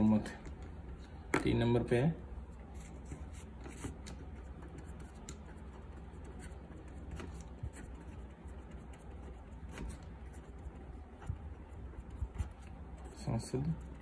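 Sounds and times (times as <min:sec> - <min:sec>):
steady low hum: 0:00.0 - 0:14.0
marker scratching on paper: 0:02.5 - 0:14.0
light marker taps: 0:03.6 - 0:05.8.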